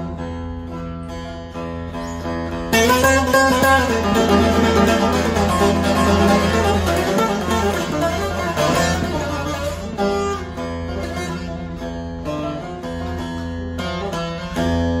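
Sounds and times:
plucked long-necked lute: 0.0s - 15.0s.

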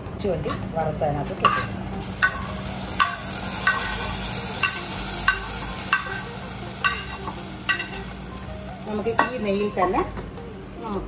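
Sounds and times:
metal spoon scraping frying pan: 1.4s - 8.1s.

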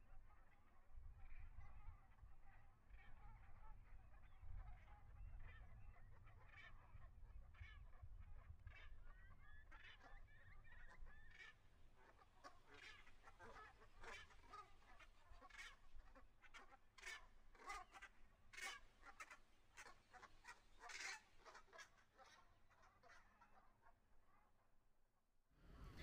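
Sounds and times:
wildfowl honking: 8.7s - 24.5s.

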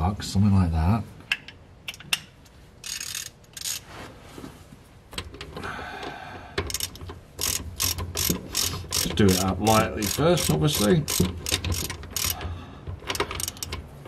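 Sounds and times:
hand ratchet clicking: 1.4s - 3.8s, 6.6s - 13.9s.

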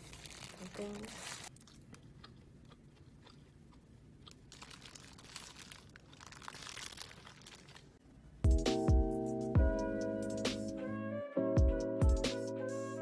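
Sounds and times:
plastic bag crinkling: 0.0s - 1.6s, 4.5s - 8.0s
chewing and crunching: 0.0s - 7.9s.

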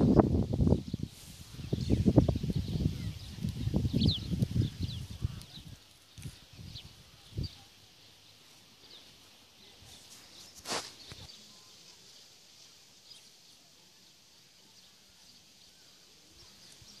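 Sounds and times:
faint bird chirps: 0.6s - 17.0s.

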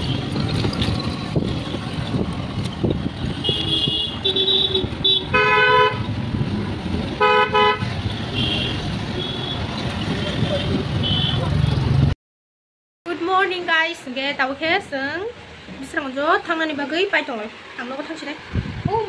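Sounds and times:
rumble of a moving ride: 0.0s - 7.2s, 17.6s - 19.0s
vehicle horns tooting: 3.3s - 6.1s, 7.2s - 11.6s.

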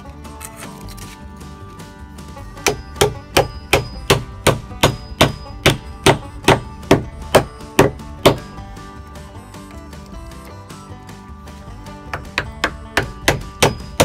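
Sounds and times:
background music: 0.0s - 14.0s.

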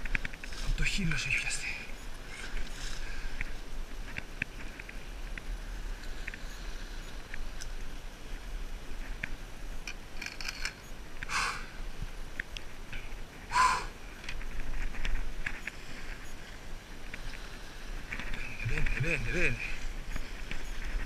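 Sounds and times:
wind: 0.0s - 21.0s
fishing gear clicking on rocks: 9.8s - 10.8s.

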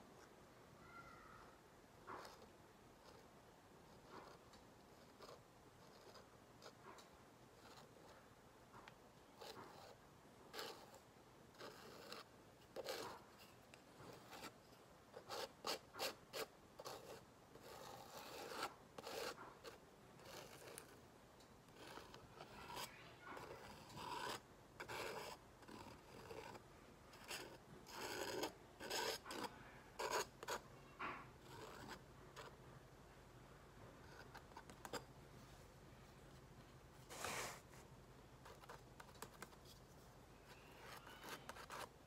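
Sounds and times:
palette knife scraping paint: 2.0s - 8.3s, 9.4s - 21.0s, 21.7s - 32.6s, 38.4s - 42.0s.

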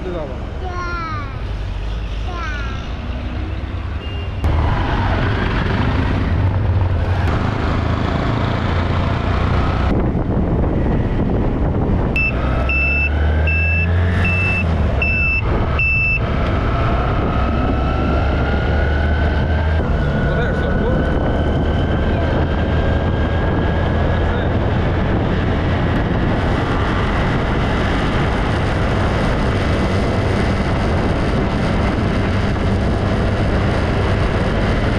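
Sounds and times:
wind and road noise: 0.0s - 34.9s
motorcycle engine hum: 1.4s - 13.6s.

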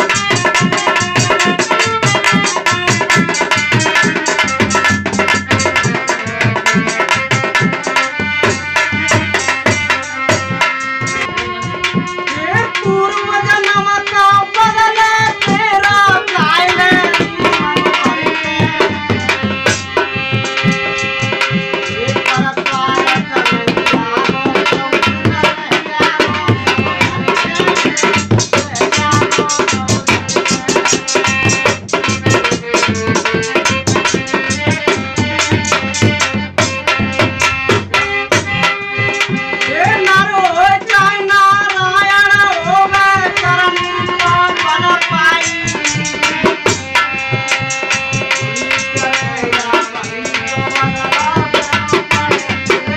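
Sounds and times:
dholak drumming fast rhythm: 0.0s - 52.9s
harmonium melody: 0.0s - 52.9s
man singing: 11.1s - 19.4s, 21.8s - 36.1s, 48.3s - 52.9s.

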